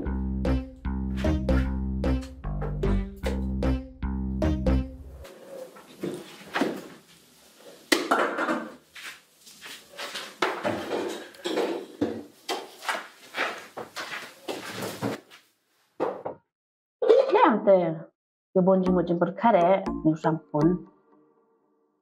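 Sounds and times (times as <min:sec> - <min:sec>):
crockery and pots clattering: 0:10.4 - 0:12.3.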